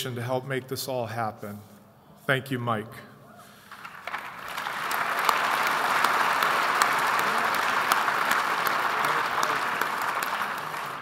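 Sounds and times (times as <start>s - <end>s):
audience applauding: 3.6s - 11.0s.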